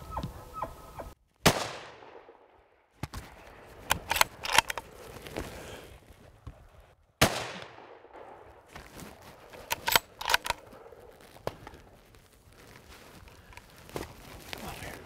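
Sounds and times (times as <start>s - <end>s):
rifle shot with echo: 1.4s - 2.6s, 7.2s - 8.7s
sharp clicks: 3.8s - 4.9s, 9.6s - 10.7s.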